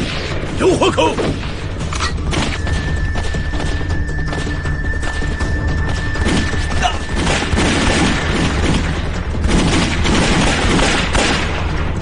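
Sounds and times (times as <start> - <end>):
rifle and pistol shots: 6.2 - 12.0.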